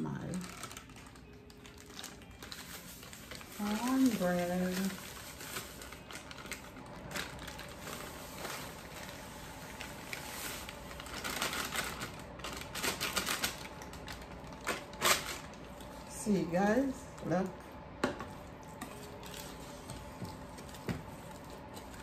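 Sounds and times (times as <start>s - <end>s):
plastic bag crinkling: 0.0s - 16.1s.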